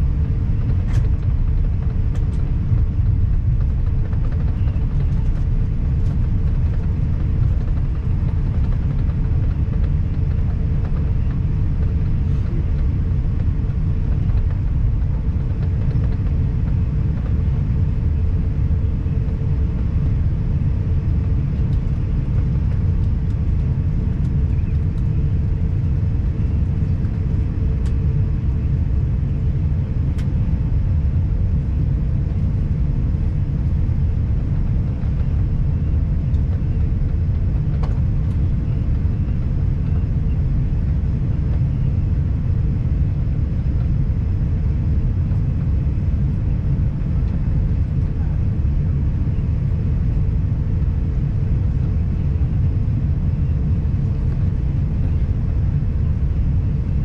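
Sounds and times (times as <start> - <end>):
airliner cabin rumble: 0.0 - 57.0
steady hum: 0.0 - 57.0.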